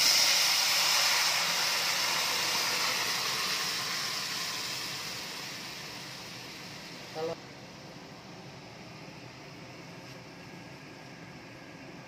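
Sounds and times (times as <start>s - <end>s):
hot oil sizzling: 0.0s - 7.4s.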